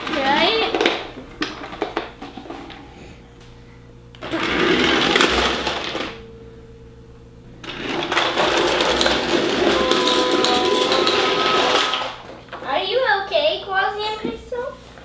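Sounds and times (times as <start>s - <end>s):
toy vehicle electric motor whirring: 4.2s - 6.1s, 7.7s - 12.2s.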